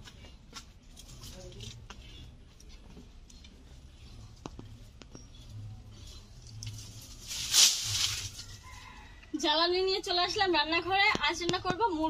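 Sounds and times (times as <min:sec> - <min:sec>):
dry stalks rustling: 0:05.9 - 0:09.2.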